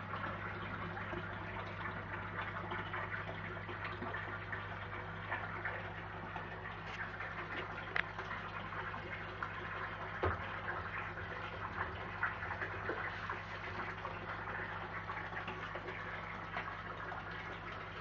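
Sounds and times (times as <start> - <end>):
steady low hum: 0.0 - 18.0
water splashing and bubbling: 0.0 - 18.0.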